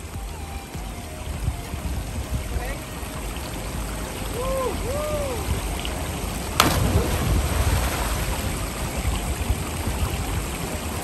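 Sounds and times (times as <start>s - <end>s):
river water rushing: 0.0s - 11.0s
person splashing into river: 6.4s - 9.6s.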